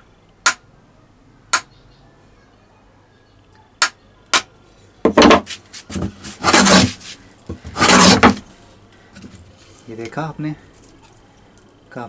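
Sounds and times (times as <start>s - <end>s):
hammer tapping plane iron: 5.1s - 7.0s, 7.6s - 8.4s
hand plane rasping along board: 5.2s - 8.4s.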